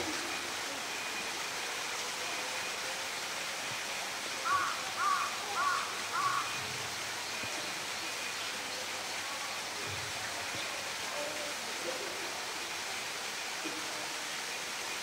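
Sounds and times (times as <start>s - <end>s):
bird calls: 4.5s - 6.6s.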